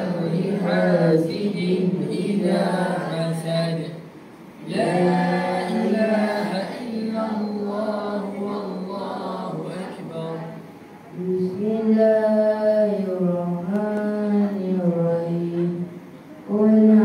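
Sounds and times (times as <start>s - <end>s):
voices chanting in unison: 0.0s - 3.8s, 4.6s - 10.6s.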